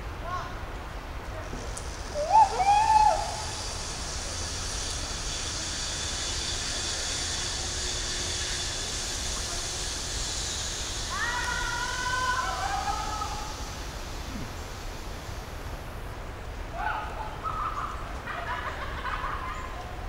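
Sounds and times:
even hiss: 0.0s - 20.0s.

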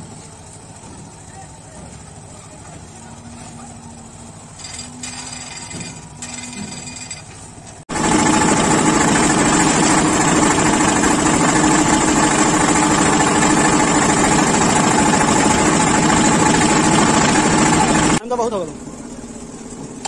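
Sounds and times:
concrete mixer engine running: 7.9s - 20.0s.

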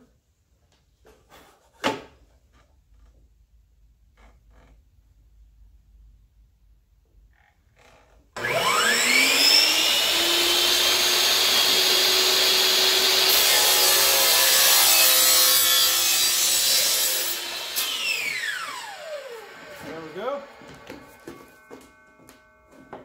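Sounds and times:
miter saw cutting plank: 8.4s - 23.0s.

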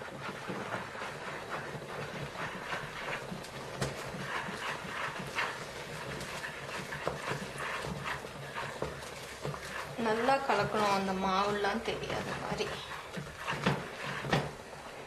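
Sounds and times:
spoon knocking and scraping pot: 0.0s - 14.8s
wooden spoon stirring in metal pot: 0.0s - 15.0s.

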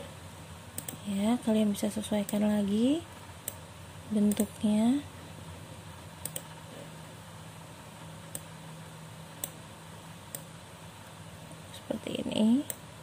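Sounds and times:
faint low hum: 0.0s - 13.0s
computer mouse clicks: 0.7s - 1.0s, 2.2s - 2.5s, 3.4s - 3.6s, 4.3s - 4.5s, 6.2s - 6.6s, 8.3s - 8.5s, 9.4s - 9.6s, 10.3s - 10.6s, 12.6s - 12.8s.

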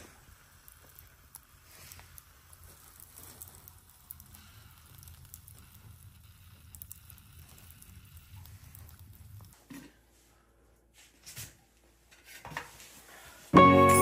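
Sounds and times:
charcoal fire crackling: 0.0s - 9.9s.

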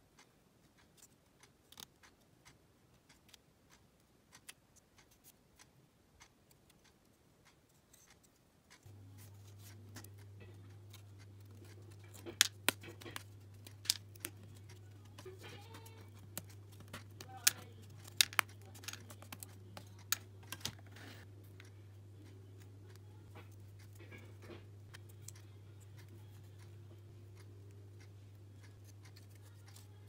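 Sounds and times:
low steady hum: 8.8s - 30.0s
plywood parts clicking and tapping: 9.9s - 20.9s.

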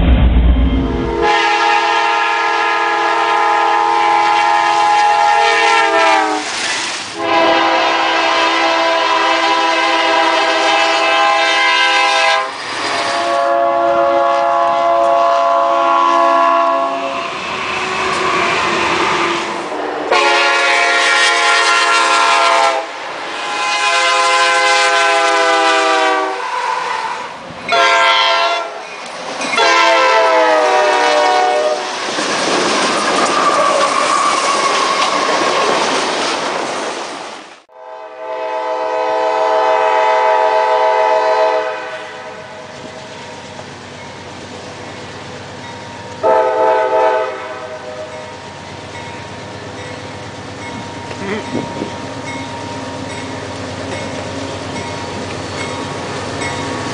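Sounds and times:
passing train noise: 0.0s - 56.9s
locomotive air horn blasts: 1.1s - 6.6s, 7.2s - 28.8s, 29.6s - 31.9s, 37.7s - 42.6s, 46.2s - 48.2s.

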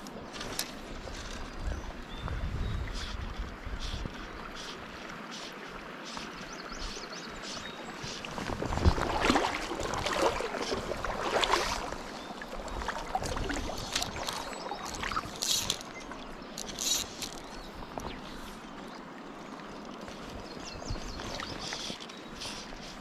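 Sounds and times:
creek water running: 0.0s - 23.0s
splashing in water: 7.6s - 18.2s.

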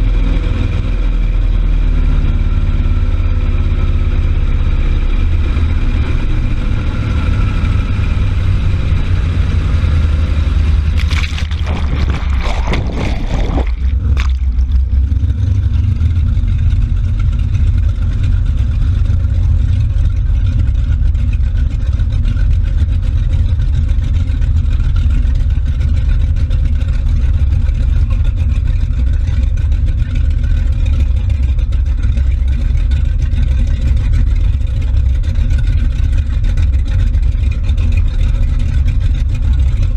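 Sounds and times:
motorboat engine drone: 0.0s - 39.9s
churning water: 8.2s - 39.9s
spray splashes: 11.0s - 14.7s.

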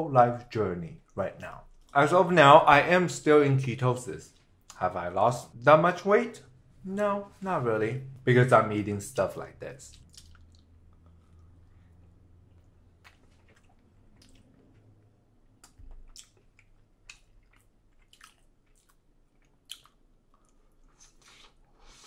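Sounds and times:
mouth clicks and smacks: 9.9s - 11.5s, 15.5s - 21.6s
person chewing: 9.9s - 22.0s.

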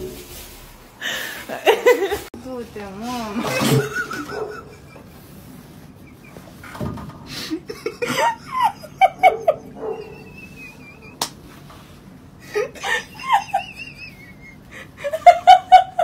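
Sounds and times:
person laughing: 1.2s - 2.3s, 3.4s - 6.6s, 7.3s - 11.3s, 12.4s - 16.0s.

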